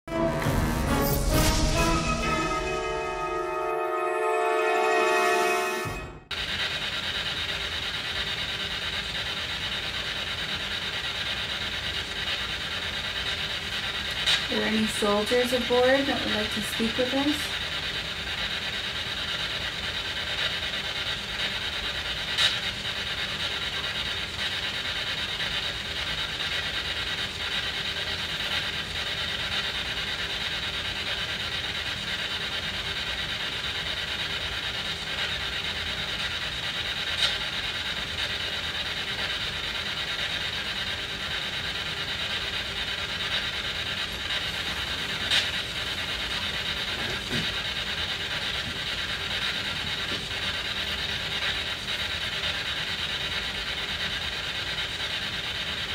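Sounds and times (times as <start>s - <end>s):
radio static hiss: 14.1s - 17.6s, 43.9s - 48.8s.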